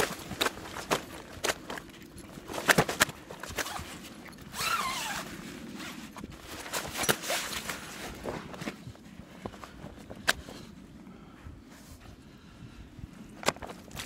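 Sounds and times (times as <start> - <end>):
nylon fabric rustling: 0.0 - 9.8
zip pulled: 2.6 - 8.2.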